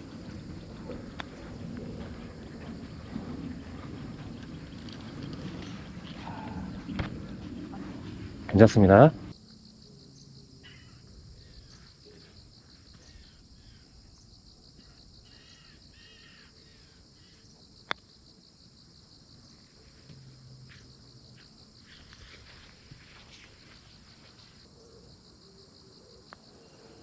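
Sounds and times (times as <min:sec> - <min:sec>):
insects chirring: 0:00.0 - 0:27.0
bird calling: 0:03.6 - 0:09.3.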